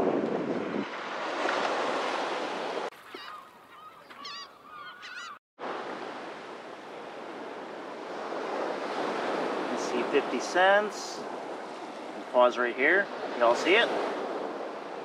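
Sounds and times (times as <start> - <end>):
wind: 0.0 - 15.0
short bird calls: 3.0 - 5.4
surf hiss: 5.6 - 15.0.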